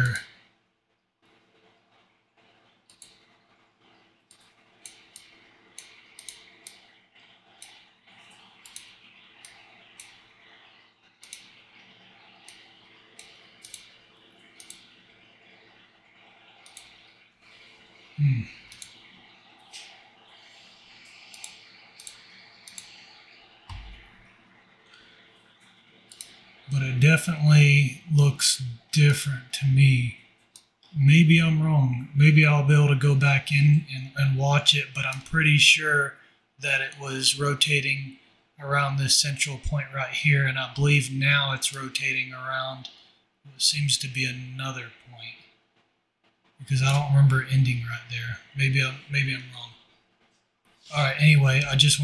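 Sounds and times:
faint background hum: 0.0s - 52.0s
mouse and keyboard clicking: 4.3s - 6.9s, 11.2s - 11.6s, 12.4s - 14.0s, 21.1s - 24.0s.

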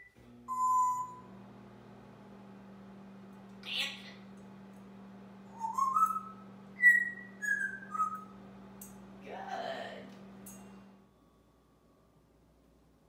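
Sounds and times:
parrot whistling notes: 0.0s - 1.2s, 5.5s - 8.4s.

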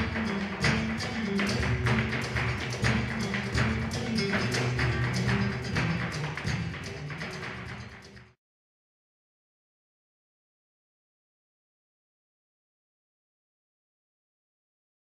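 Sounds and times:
heel and toe strikes on wooden stage: 0.0s - 8.1s
flamenco guitar: 0.0s - 8.4s.

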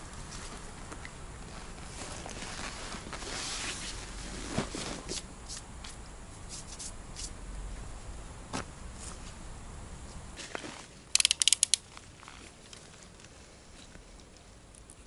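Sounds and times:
fishing gear knocks and clicks: 11.2s - 11.8s.

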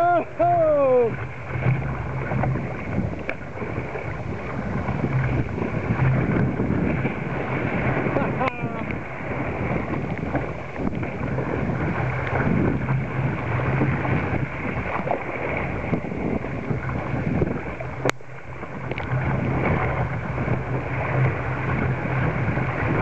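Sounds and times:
water splashing against kayak hull: 0.0s - 23.0s
wind buffeting microphone: 0.0s - 23.0s
sharp tick: 3.2s - 3.4s, 18.0s - 18.2s, 18.9s - 19.1s.

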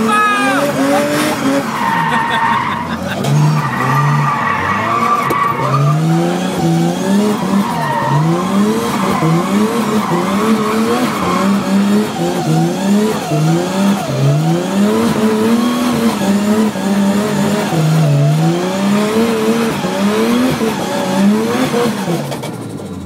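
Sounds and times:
tyres screeching: 0.0s - 12.3s
car engine revving: 0.0s - 23.0s.

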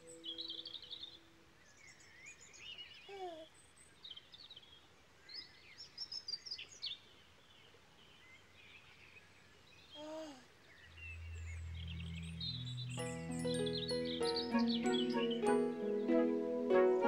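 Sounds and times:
birdsong chirping: 0.0s - 17.0s
baby cooing: 3.1s - 3.5s, 10.0s - 10.5s
low held music notes: 10.8s - 17.0s.

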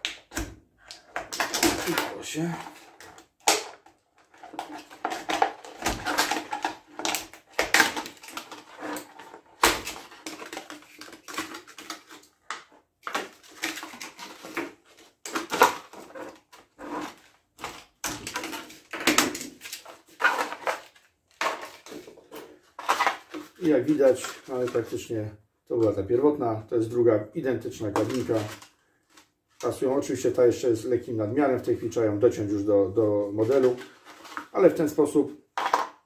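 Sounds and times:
plastic crinkling and crackling: 0.8s - 25.0s, 27.8s - 29.8s.

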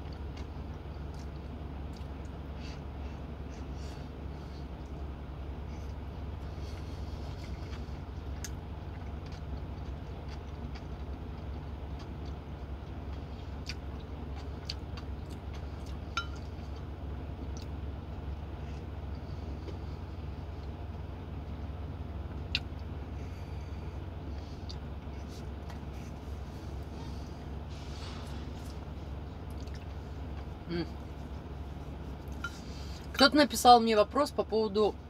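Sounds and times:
chewing: 0.0s - 2.4s, 5.7s - 20.9s, 24.3s - 33.1s
low cab hum: 0.0s - 35.0s.

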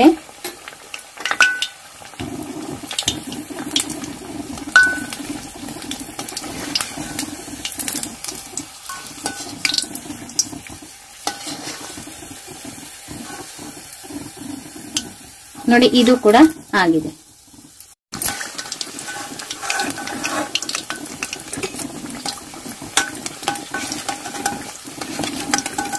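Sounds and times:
oil sizzling: 0.0s - 25.9s
metal spoon scraping pan: 4.7s - 16.6s, 18.2s - 25.9s.

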